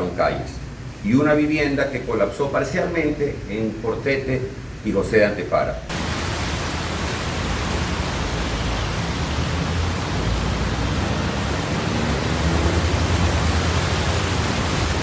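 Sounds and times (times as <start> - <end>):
rain and water hiss: 0.0 - 15.0
low traffic rumble: 5.8 - 15.0.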